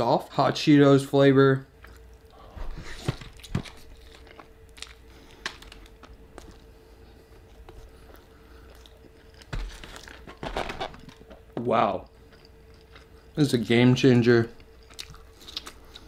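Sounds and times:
close chewing with crunches: 0:03.3 - 0:06.7, 0:07.4 - 0:10.3, 0:12.0 - 0:13.4, 0:14.6 - 0:16.0.

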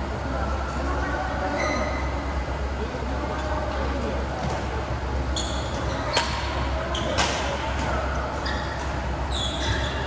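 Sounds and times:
low hum in hall: 0:00.0 - 0:10.0
shoes squeaking on court floor: 0:05.3 - 0:10.0.

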